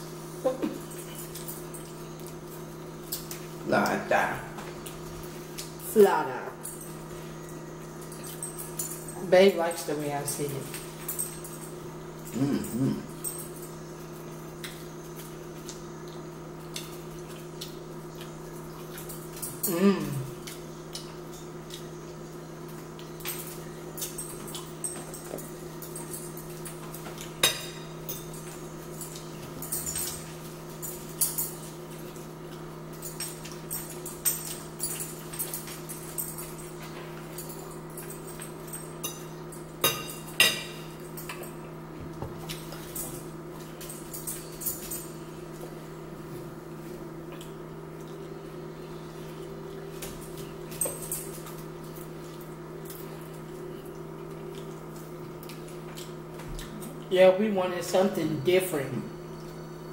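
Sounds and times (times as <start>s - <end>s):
low electrical hum: 0.0s - 59.9s
chewing and lip smacking: 13.1s - 19.7s, 20.3s - 27.4s, 50.2s - 57.1s.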